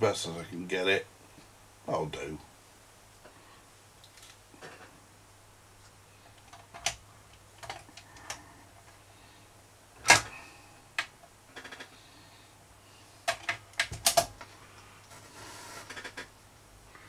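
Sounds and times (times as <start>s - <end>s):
record changer mechanism clunk: 10.0s - 10.4s.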